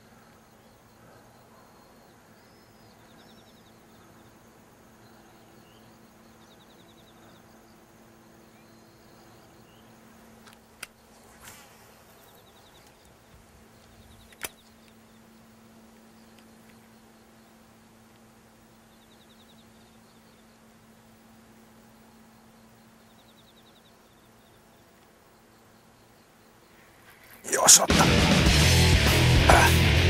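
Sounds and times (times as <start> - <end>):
steady low hum: 0.0 - 30.0
sharp clicks: 13.8 - 14.7.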